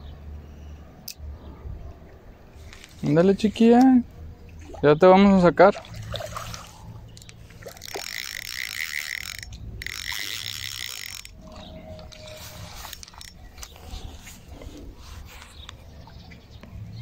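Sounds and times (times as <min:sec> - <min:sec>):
light reel clicks: 0:07.1 - 0:13.9
spinning reel whirring: 0:07.2 - 0:13.6.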